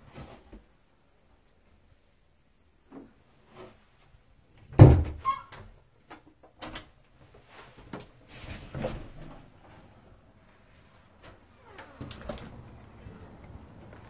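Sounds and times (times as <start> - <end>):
loud door thump: 4.8 - 5.2.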